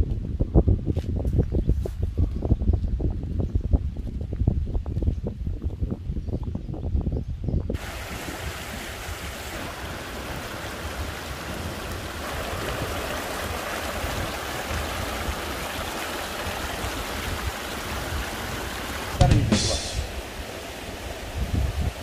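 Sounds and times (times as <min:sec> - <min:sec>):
stream rushing over rocks: 0:07.8 - 0:22.0
short loud noise: 0:19.2 - 0:20.2.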